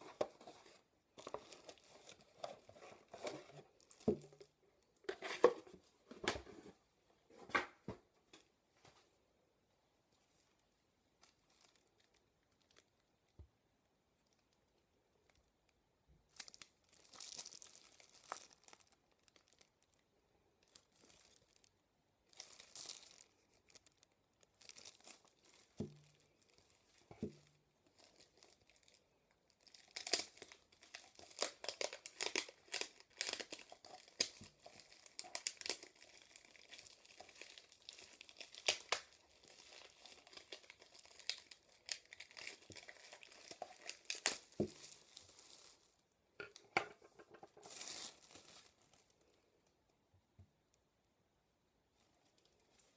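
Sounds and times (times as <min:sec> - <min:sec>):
plastic wrap crinkling and tearing: 0:00.0 - 0:05.5, 0:11.2 - 0:13.2, 0:16.3 - 0:49.4.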